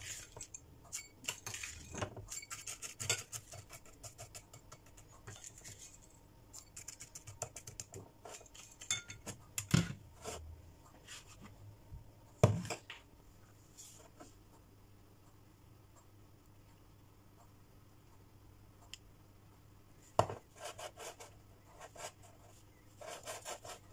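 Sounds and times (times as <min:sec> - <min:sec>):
spoon scraping a glass: 0:00.0 - 0:03.7.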